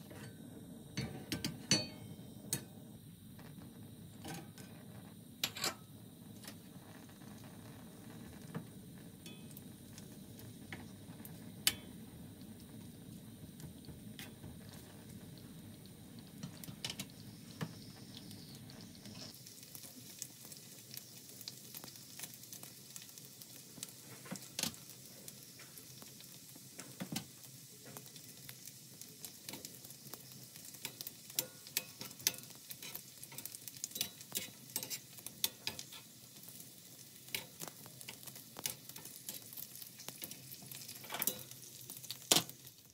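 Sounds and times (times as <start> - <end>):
sausage sizzling in oil: 0.0 - 42.9
metal tongs clicking on pan: 1.0 - 2.0, 5.4 - 5.8, 11.7 - 11.9, 30.8 - 36.1, 37.3 - 42.5
crackling pops: 16.4 - 42.9.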